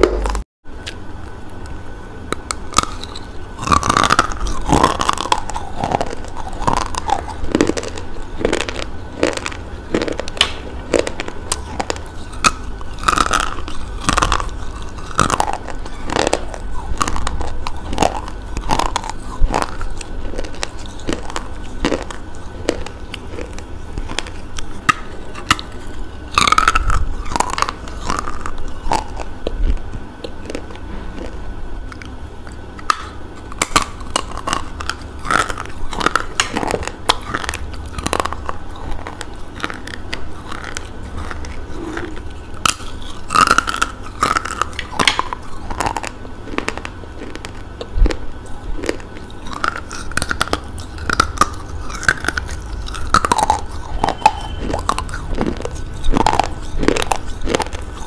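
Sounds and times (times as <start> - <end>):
person chewing: 0.0 - 1.4, 2.3 - 58.0
person crunching brittle clay: 32.8 - 58.0.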